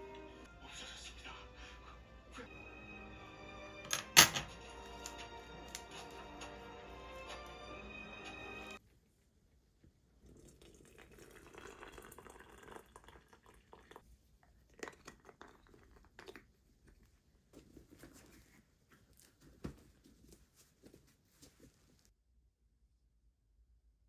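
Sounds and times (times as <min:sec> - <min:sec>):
water pouring: 0:10.2 - 0:16.6.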